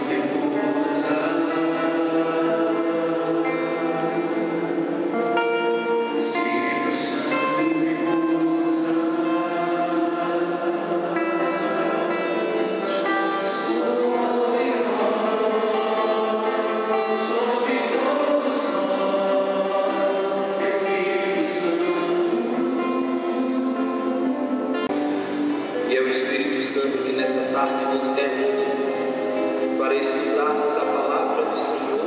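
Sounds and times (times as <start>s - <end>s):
choir singing: 0.0s - 25.1s.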